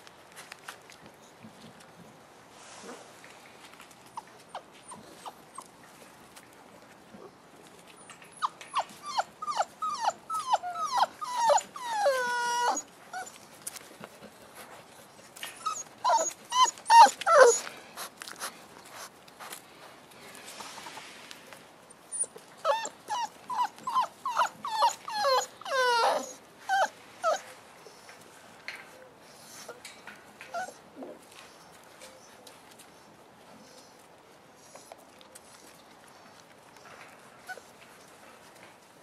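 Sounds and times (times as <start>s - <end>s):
puppies yelping and whining: 8.0s - 13.4s, 15.5s - 17.7s, 22.1s - 27.5s, 30.5s - 31.2s.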